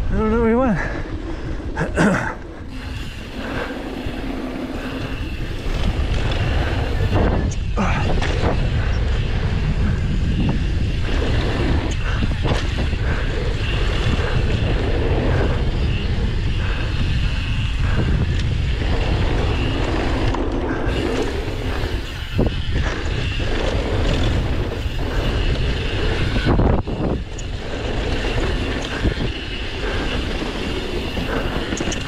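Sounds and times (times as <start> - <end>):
bike rattling: 0.0 - 32.0
bike tyres on dirt: 0.0 - 32.0
wind buffeting microphone: 0.0 - 32.0.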